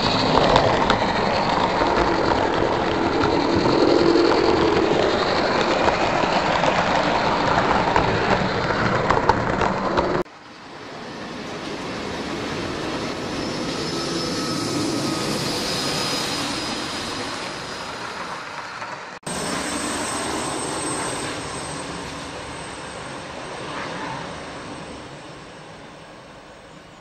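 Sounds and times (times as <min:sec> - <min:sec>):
model train wheels rolling on rails: 0:00.0 - 0:10.2.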